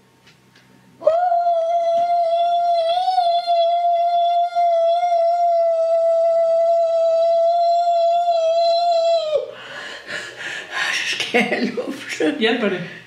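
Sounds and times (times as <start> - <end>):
woman singing long high note: 1.0 - 9.5.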